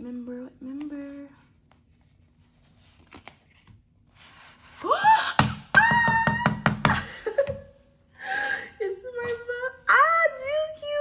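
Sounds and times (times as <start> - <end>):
woman squealing excitedly: 4.8 - 7.1.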